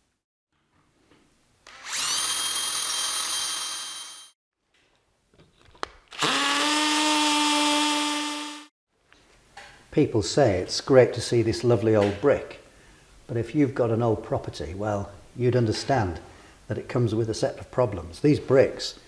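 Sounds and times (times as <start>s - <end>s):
cordless drill boring into brick: 1.7s - 4.3s, 6.2s - 8.6s.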